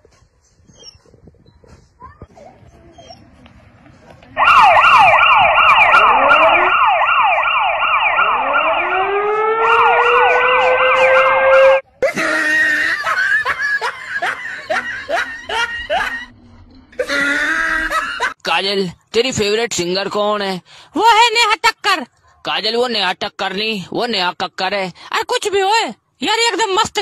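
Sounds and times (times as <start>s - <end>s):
sirens yelping: 4.4s - 11.8s.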